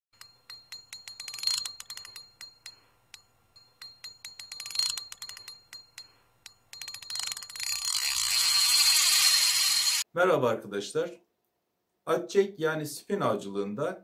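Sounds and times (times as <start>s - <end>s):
faint steady ringing tone: 0.2s - 10.0s
sharp metallic clicks: 0.2s - 10.0s.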